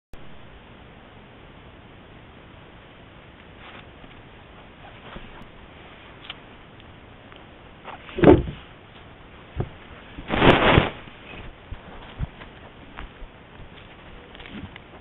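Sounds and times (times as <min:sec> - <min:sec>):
faint steady hiss: 0:00.2 - 0:15.0
scuffing bump on microphone: 0:09.6 - 0:14.7.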